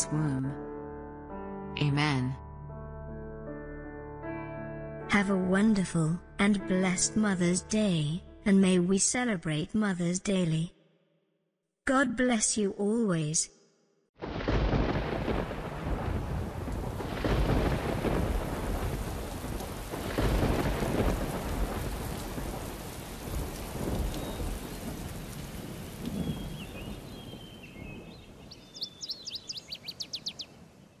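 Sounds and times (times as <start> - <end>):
thunder rolling: 14.2 - 28.4
steady rain: 14.2 - 29.1
bird chirping: 26.2 - 31.0.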